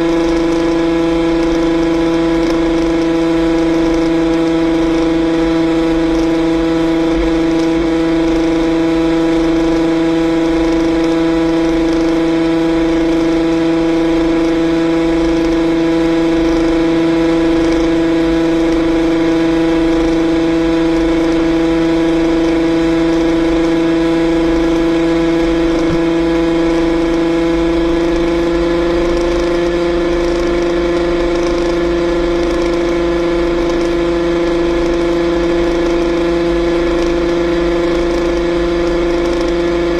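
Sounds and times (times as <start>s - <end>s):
two-stroke engine running at high revs: 0.0s - 39.9s
wind rumble on microphone: 22.4s - 33.0s.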